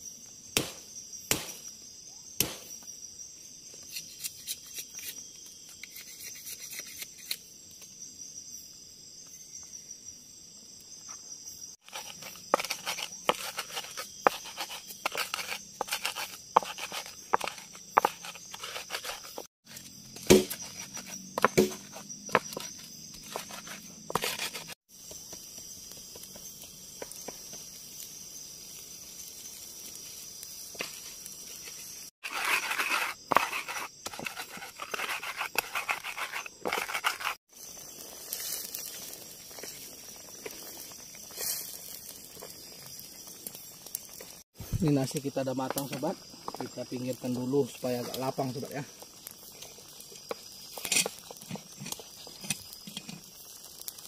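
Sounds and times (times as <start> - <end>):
night insects chirring: 0.0 - 54.0.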